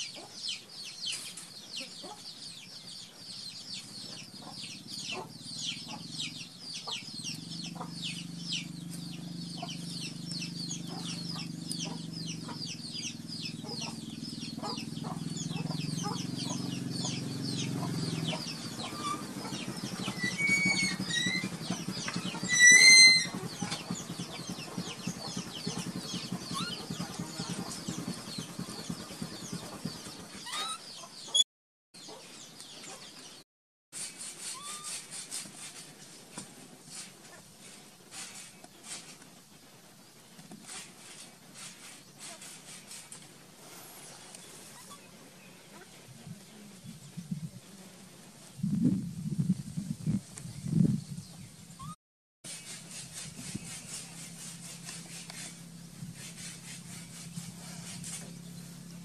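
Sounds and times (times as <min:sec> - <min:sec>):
chickens clucking: 0:00.0 - 0:31.4, 0:44.3 - 0:46.6
low steady hum: 0:04.9 - 0:30.4.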